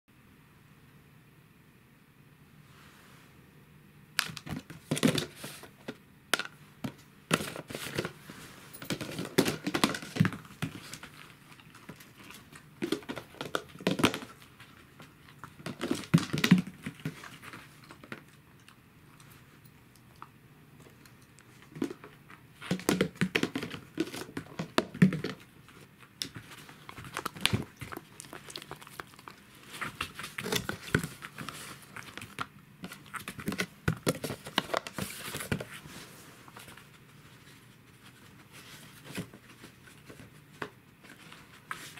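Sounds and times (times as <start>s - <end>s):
plastic boxes clattering on floor: 4.2s - 11.2s, 11.8s - 14.4s, 15.5s - 18.2s, 21.6s - 25.5s.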